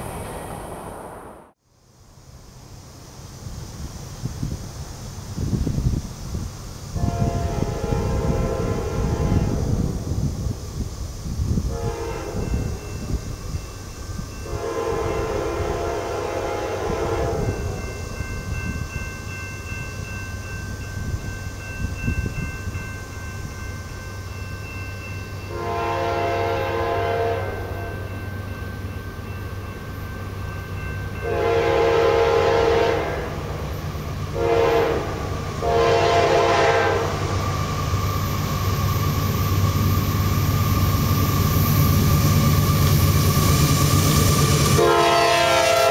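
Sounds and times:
diesel engine droning: 0:00.0 - 0:01.6
locomotive air horn blasts: 0:07.0 - 0:09.9, 0:11.7 - 0:12.9, 0:14.4 - 0:17.8, 0:25.5 - 0:28.0, 0:31.2 - 0:33.5, 0:34.3 - 0:37.3, 0:44.7 - 0:45.9.

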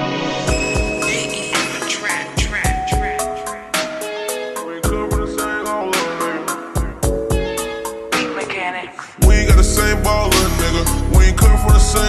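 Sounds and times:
hip-hop drums with bass kicks: 0:00.5 - 0:03.9, 0:04.8 - 0:07.8, 0:09.2 - 0:12.0.

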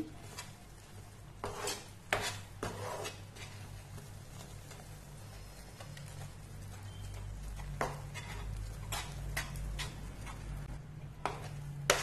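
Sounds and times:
metal spatula scraping a pan: 0:01.4 - 0:04.6, 0:06.9 - 0:12.0.

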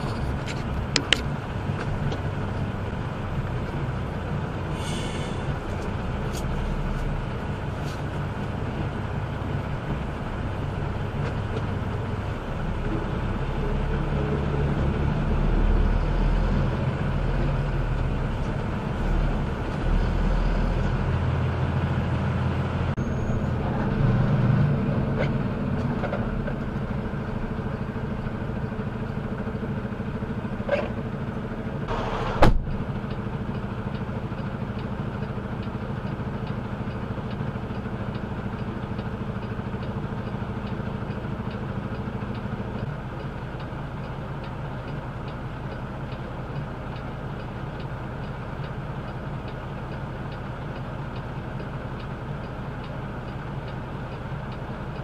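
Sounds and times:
diesel truck engine running: 0:00.0 - 0:55.0
faint regular tick: 0:33.0 - 0:55.0.

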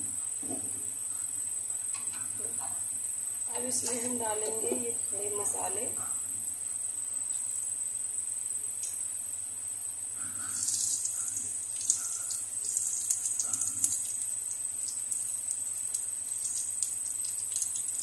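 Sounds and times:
spices sizzling in hot oil: 0:09.8 - 0:18.0
crackles and pops: 0:10.2 - 0:18.0.

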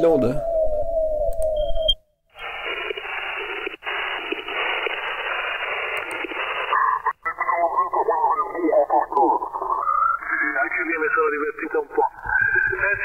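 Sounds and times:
falling whistle tone: 0:00.0 - 0:02.0, 0:12.2 - 0:13.0
radio static hiss: 0:02.3 - 0:13.0.

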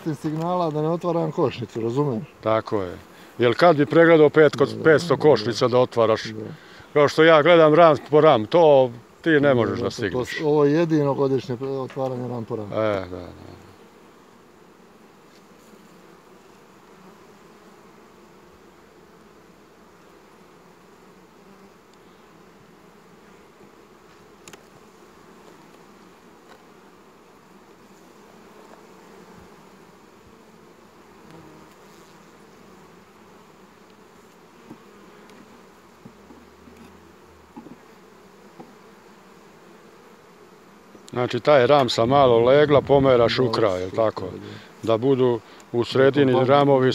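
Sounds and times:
light knocks of hive frames: 0:00.0 - 0:01.2, 0:03.8 - 0:04.8, 0:11.4 - 0:13.1, 0:23.5 - 0:26.7, 0:28.6 - 0:29.6, 0:33.8 - 0:39.1, 0:40.8 - 0:42.1
bees humming: 0:00.0 - 0:46.9.

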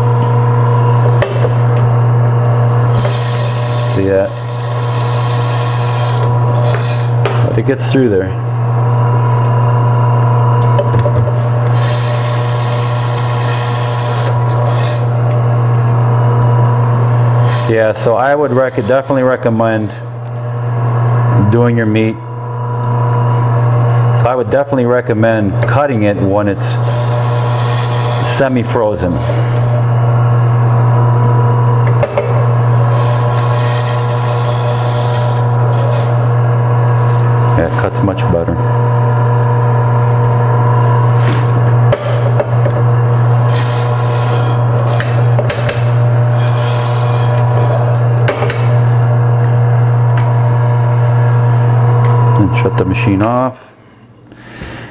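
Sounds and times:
meat slicer humming: 0:00.0 - 0:54.9
blade rasping through meat: 0:17.4 - 0:20.1, 0:26.8 - 0:29.9, 0:43.3 - 0:48.7
blade scraping through meat: 0:43.4 - 0:48.0.

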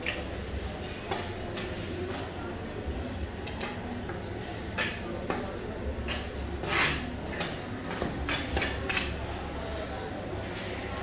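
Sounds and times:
knife scraping and tapping board: 0:04.8 - 0:09.1.

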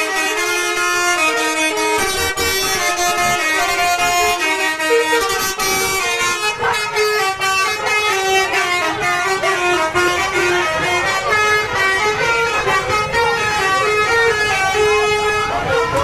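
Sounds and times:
multi-tone bus air horn tune: 0:00.0 - 0:16.0.

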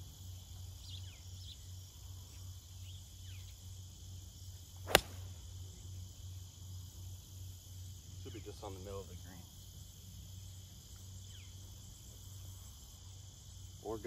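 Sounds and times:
insects droning: 0:00.0 - 0:14.0
golf club striking ball: 0:04.9 - 0:05.3.

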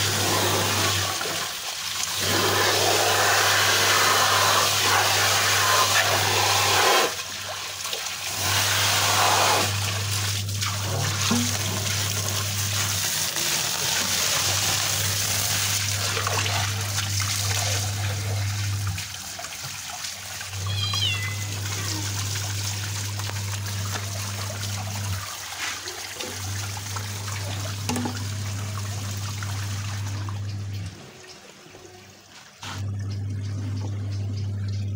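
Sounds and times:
hose water splashing: 0:00.0 - 0:33.9
low hum: 0:32.8 - 0:34.9.

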